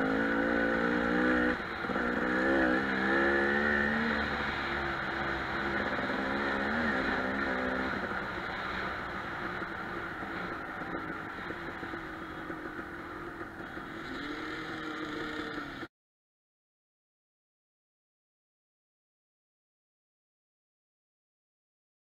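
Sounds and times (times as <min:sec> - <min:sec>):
dirt bike engine: 0:00.0 - 0:15.9.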